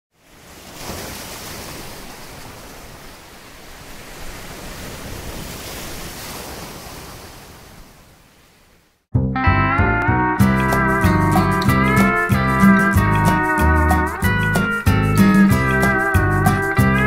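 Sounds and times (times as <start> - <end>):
ocean waves washing in: 0.1 - 9.1.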